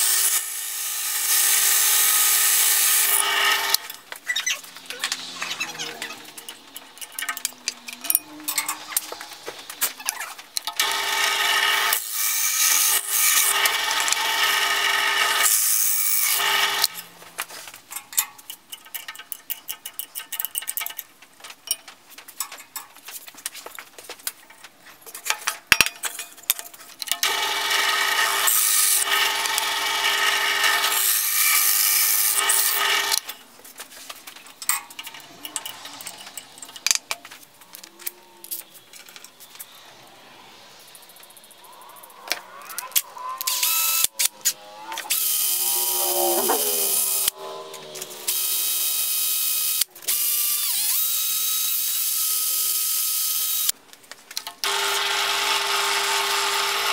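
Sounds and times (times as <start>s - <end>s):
drill press running: 27.2s - 33.3s.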